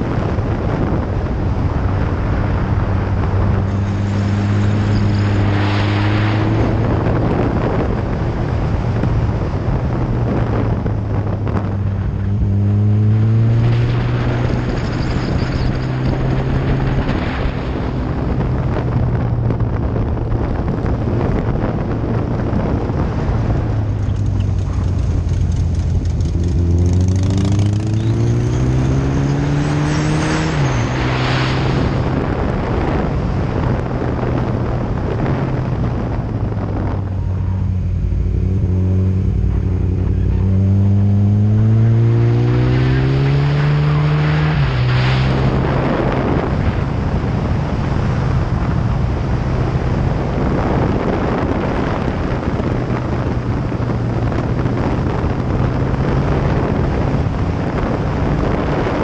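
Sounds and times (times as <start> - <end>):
wind rushing over microphone: 0.0 - 59.0
motorcycle engine running: 18.0 - 29.7, 32.1 - 42.3.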